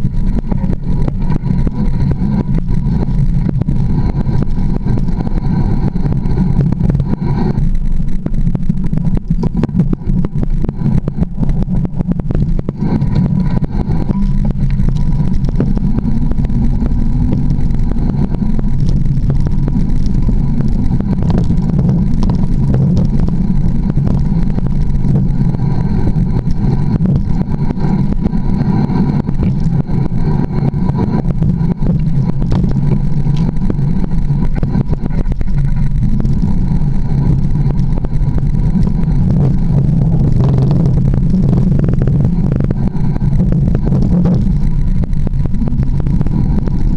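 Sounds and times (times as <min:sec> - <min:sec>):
low rumble of trail vibration: 0:00.0 - 0:46.9.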